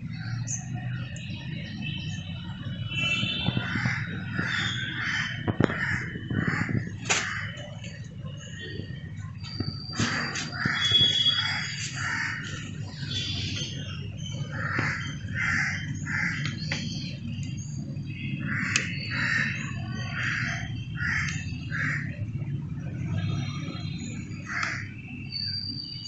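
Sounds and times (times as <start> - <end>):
crows cawing: 3.6 - 7.7, 10.1 - 12.7, 14.5 - 16.6, 18.4 - 22.2, 24.4 - 24.9.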